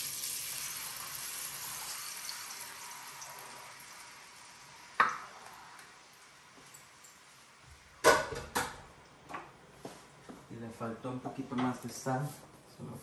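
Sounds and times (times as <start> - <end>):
salsa sizzling in hot oil: 0.0 - 7.9.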